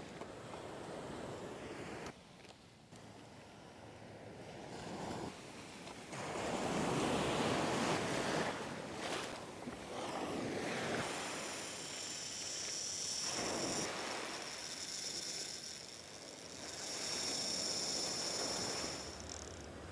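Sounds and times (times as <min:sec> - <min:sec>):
ocean waves breaking: 0:06.1 - 0:19.9
steady high whine: 0:10.9 - 0:19.9.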